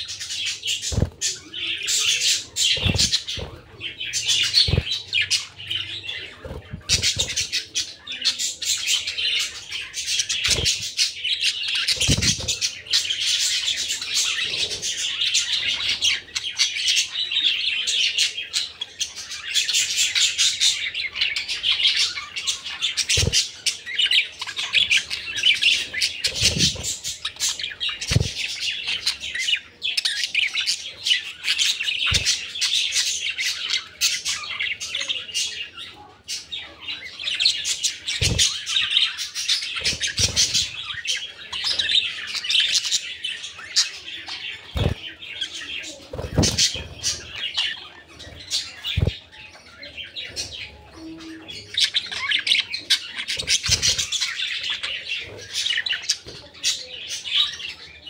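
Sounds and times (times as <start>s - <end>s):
budgerigars chattering: 0.0s - 58.0s
dull thumps: 2.7s - 3.8s, 4.6s - 5.0s, 28.1s - 28.4s, 44.8s - 45.0s, 46.1s - 47.3s.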